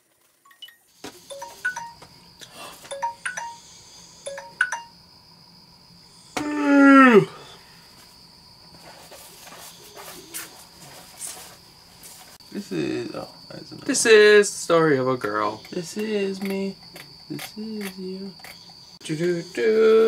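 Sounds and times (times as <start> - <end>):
electronic chime tones: 0.5 - 2.0, 2.9 - 3.7, 4.3 - 5.0
man crying out: 6.4 - 7.4.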